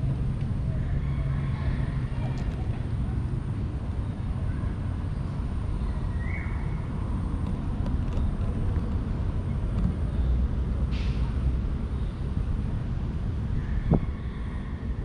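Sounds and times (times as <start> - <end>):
low outdoor rumble: 0.0 - 15.0.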